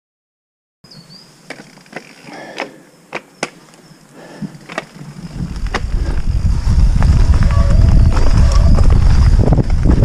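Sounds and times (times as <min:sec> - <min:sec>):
wind: 0:00.8 - 0:10.0
bike clicks and knocks: 0:01.5 - 0:03.8, 0:04.4 - 0:06.0.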